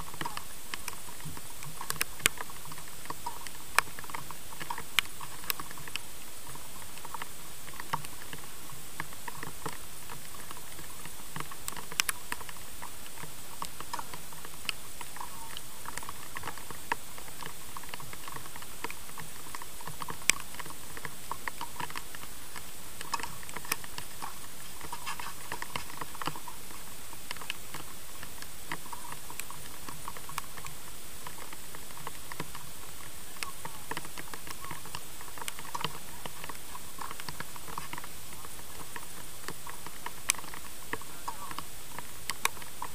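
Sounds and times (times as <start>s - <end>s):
light pattering clicks: 0.0s - 42.9s
steady hiss: 0.0s - 42.9s.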